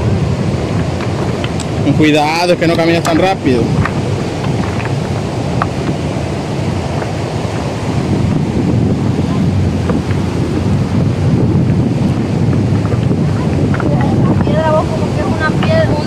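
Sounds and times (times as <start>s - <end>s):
surf breaking on cobble beach: 0.0s - 16.0s
wind buffeting microphone: 0.0s - 16.0s.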